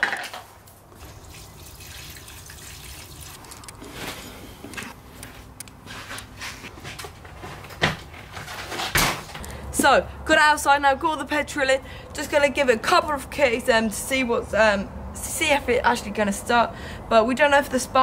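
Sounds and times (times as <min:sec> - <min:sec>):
petrol pouring into fuel tank: 0:00.9 - 0:04.3.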